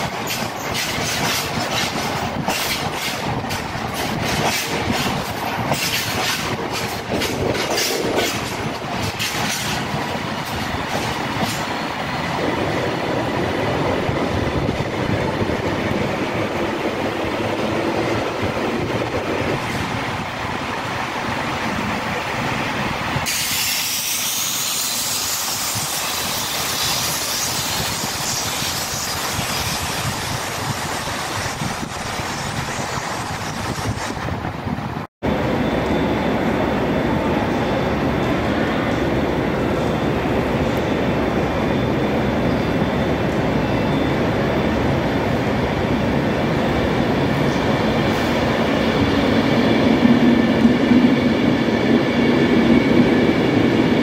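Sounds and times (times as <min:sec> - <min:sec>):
train wheels clicking over rail joints: 0:00.0 - 0:12.4
electric train rumble: 0:00.0 - 0:54.0
train high hiss and whine: 0:00.0 - 0:54.0.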